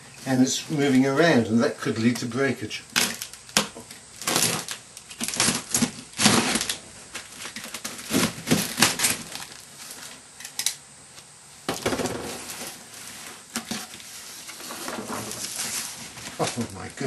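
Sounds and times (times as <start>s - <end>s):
cardboard scraping and rustling: 4.2s - 10.2s, 11.7s - 17.0s.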